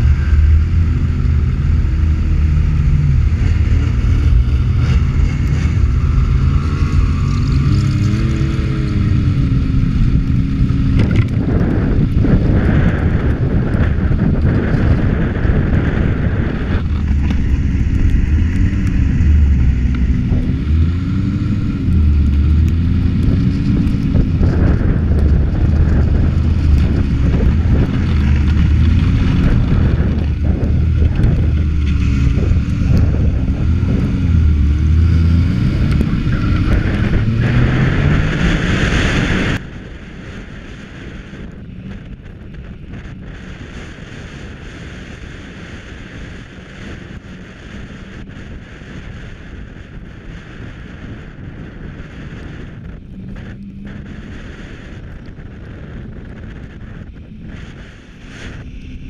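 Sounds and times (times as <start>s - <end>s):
snowmobile engine revving: 0.0s - 41.4s.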